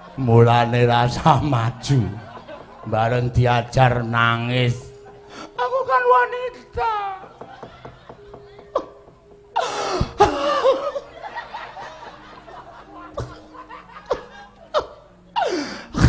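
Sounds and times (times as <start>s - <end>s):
audience laughing: 1.7s - 3.4s, 7.3s - 9.2s, 10.2s - 15.0s
sharp wooden knocks: 7.2s - 9.6s.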